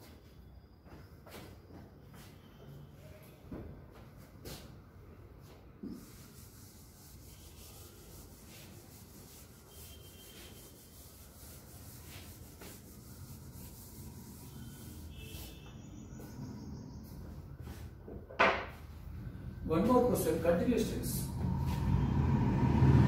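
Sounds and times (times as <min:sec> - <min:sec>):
duster rubbing on chalkboard: 0:05.8 - 0:17.9, 0:19.9 - 0:22.4.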